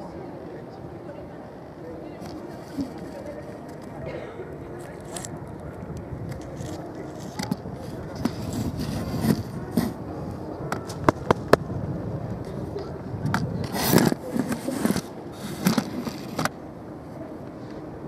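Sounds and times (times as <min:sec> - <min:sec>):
voices of passers-by: 0:00.0 - 0:18.0
camera handling scrapes and clicks: 0:04.8 - 0:05.3, 0:06.3 - 0:10.0, 0:13.3 - 0:16.5.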